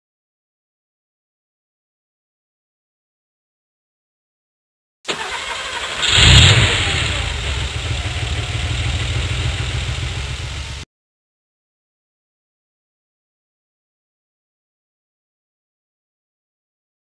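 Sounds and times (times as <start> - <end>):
car engine starting and idling: 5.1 - 10.8.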